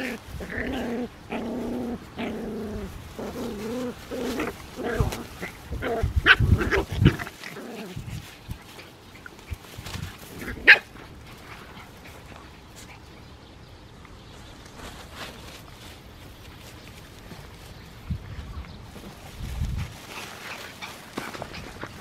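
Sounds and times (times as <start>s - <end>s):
puppies growling at play: 0.0s - 13.4s, 19.9s - 22.0s
plastic bag crinkling and scuffling: 14.7s - 17.8s, 18.9s - 22.0s.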